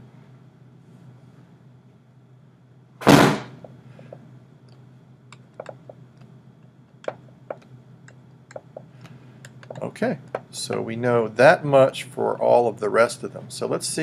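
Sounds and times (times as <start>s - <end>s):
steady low hum: 0.0s - 14.0s
loud thump: 3.0s - 3.6s.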